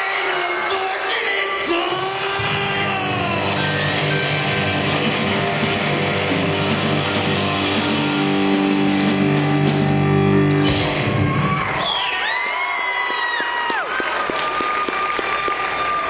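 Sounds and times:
drum and cymbal hits: 1.9 - 11.6
electric guitars: 2.1 - 11.6
bass guitar: 2.1 - 11.7.

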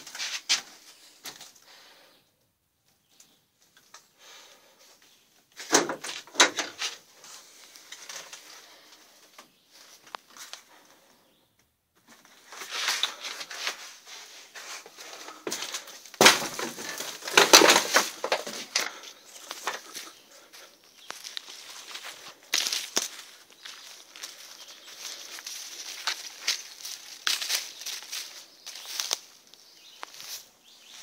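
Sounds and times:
footsteps crunching on leaf litter: 12.1 - 31.0.

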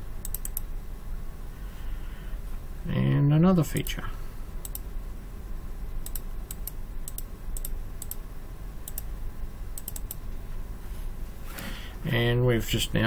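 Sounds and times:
low steady hum: 0.0 - 13.0
mouse buttons clicking: 9.8 - 10.2.

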